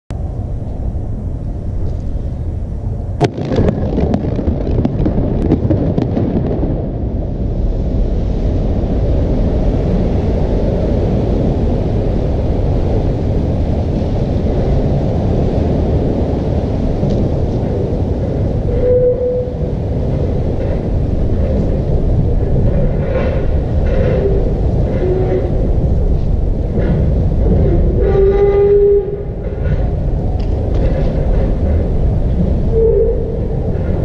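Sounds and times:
steady low rush of noise: 0:00.1 - 0:34.0
explosive blasts and cracks: 0:03.1 - 0:18.7.

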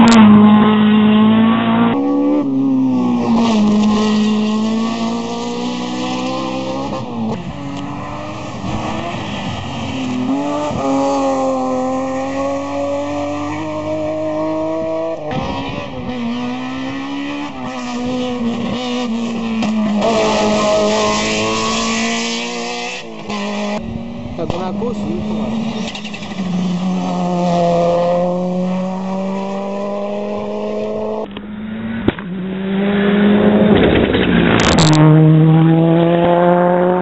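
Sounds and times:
race car engines revving: 0:00.0 - 0:37.0.

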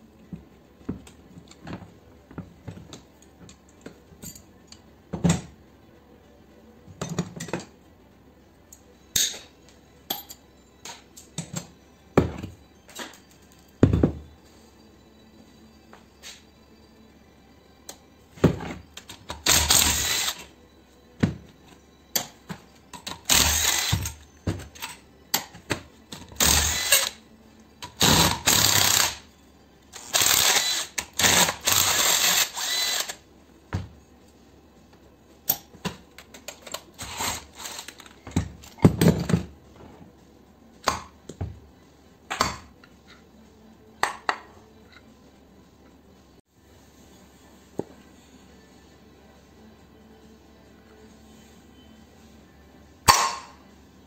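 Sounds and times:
cordless drill running: 0:19.5 - 0:20.4, 0:23.3 - 0:24.0, 0:26.4 - 0:27.1, 0:30.0 - 0:33.2.

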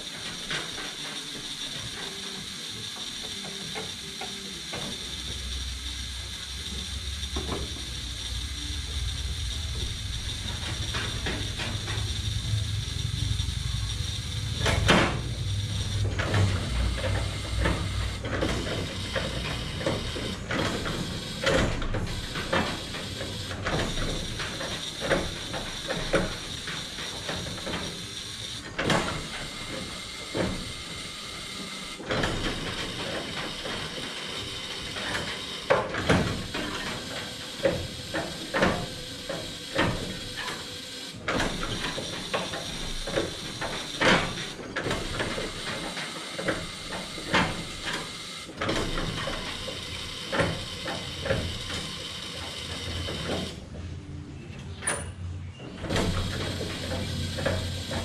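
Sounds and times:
tools clanking in engine bay: 0:09.8 - 0:12.7, 0:14.4 - 0:30.7.

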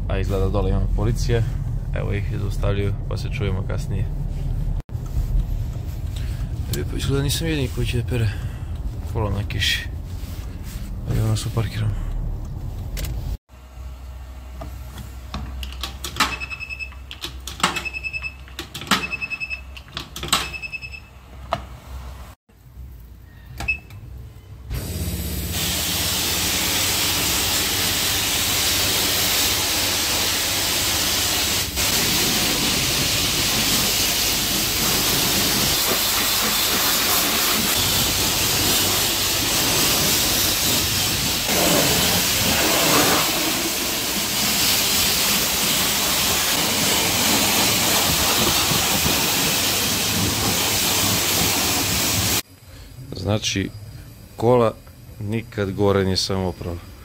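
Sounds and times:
control box beeps: 0:16.3 - 0:17.0, 0:17.8 - 0:19.7, 0:20.4 - 0:21.1
pressure washer spraying water: 0:24.8 - 0:52.4.

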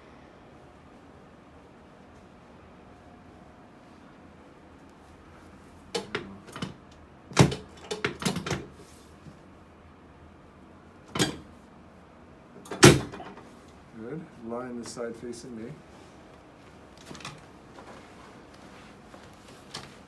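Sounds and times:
treatment table clunking: 0:11.1 - 0:11.5, 0:12.6 - 0:13.4.

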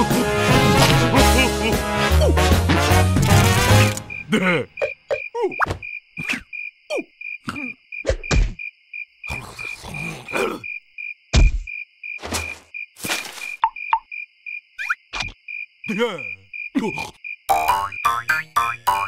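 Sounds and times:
cricket chirping: 0:03.5 - 0:19.0
cartoon character vocal noises: 0:04.3 - 0:07.8, 0:15.9 - 0:17.2.

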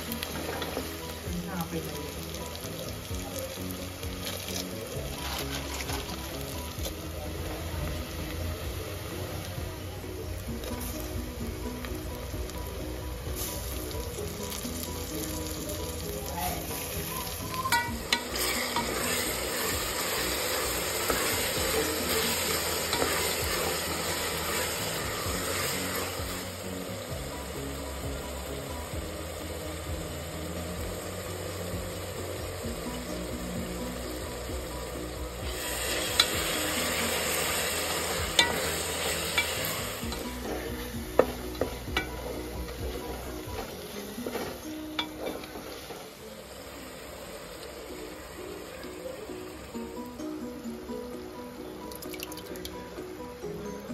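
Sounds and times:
vegetables sizzling in a pot: 0:00.0 - 0:53.9
spatula scraping a pot: 0:05.0 - 0:06.2.

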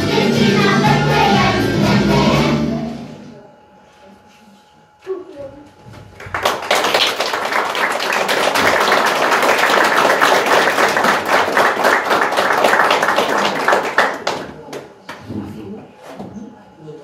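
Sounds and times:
audience applauding: 0:06.2 - 0:14.7.

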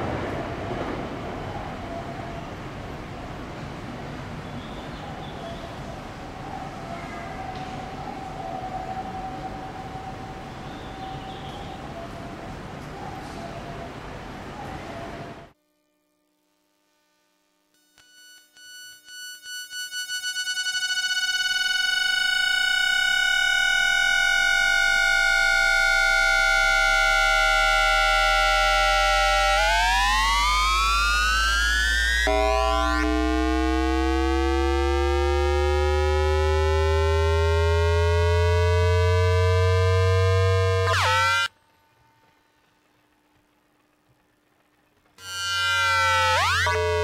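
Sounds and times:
electronic tones gliding and stepping: 0:18.2 - 0:41.5, 0:45.2 - 0:47.0
low hum: 0:19.8 - 0:47.0.

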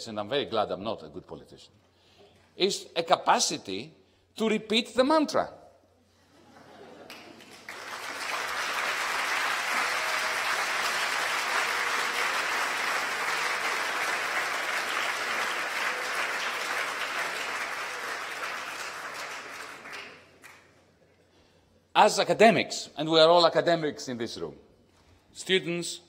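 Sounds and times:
audience applauding: 0:07.0 - 0:20.7.

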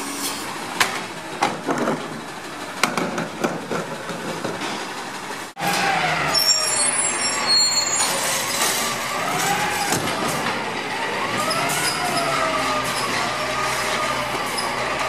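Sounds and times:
garbage truck diesel engine running: 0:00.0 - 0:15.0
hydraulics whining: 0:04.9 - 0:15.0
high squeaks of truck stopping: 0:05.6 - 0:10.4, 0:11.2 - 0:15.0.

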